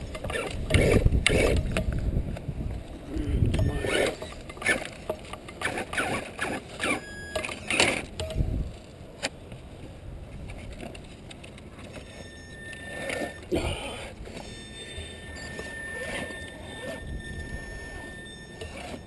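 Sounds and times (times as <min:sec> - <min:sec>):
toy car motor whining: 0:00.2 - 0:01.6, 0:03.6 - 0:05.0, 0:05.6 - 0:08.1, 0:11.9 - 0:13.6, 0:14.3 - 0:19.0.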